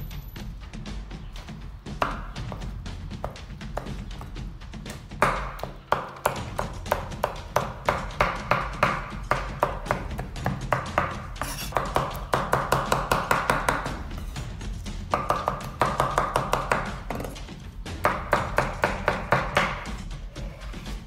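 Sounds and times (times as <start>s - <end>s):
knife chopping on wooden board: 2.0s - 14.3s, 15.1s - 17.4s, 18.0s - 19.9s.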